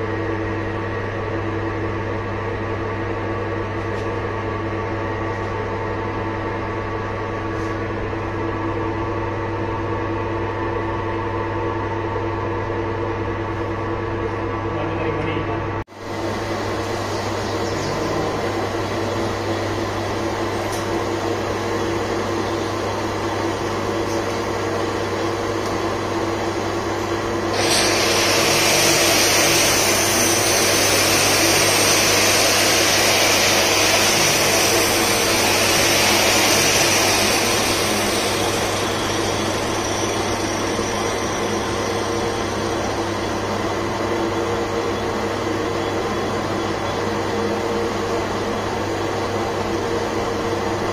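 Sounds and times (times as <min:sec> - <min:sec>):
lathe motor and gear hum: 0:13.3 - 0:50.9.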